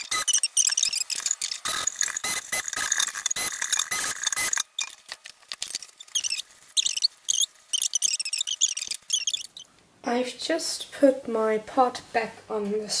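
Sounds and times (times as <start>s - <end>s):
stick blender sped up clicking: 0.0s - 4.7s
short chirping sounds: 0.0s - 5.0s, 5.9s - 9.7s.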